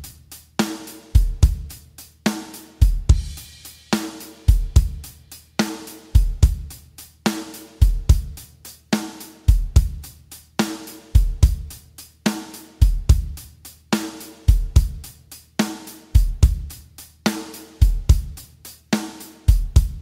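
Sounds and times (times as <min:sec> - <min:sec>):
drum kit rhythm: 0:00.0 - 0:20.0.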